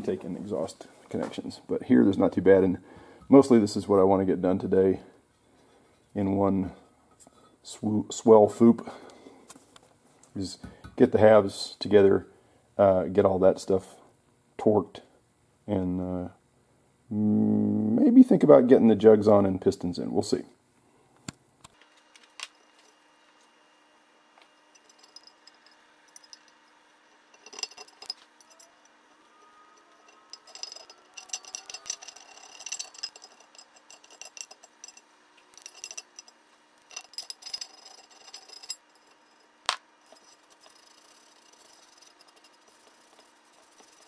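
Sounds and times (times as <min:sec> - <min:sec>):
metal parts clinking and rattling: 0:24.6 - 0:28.9, 0:30.1 - 0:44.0.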